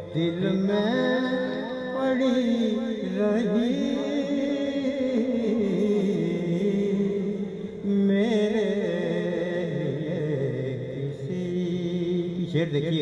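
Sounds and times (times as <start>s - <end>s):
man chanting verse: 0.0s - 13.0s.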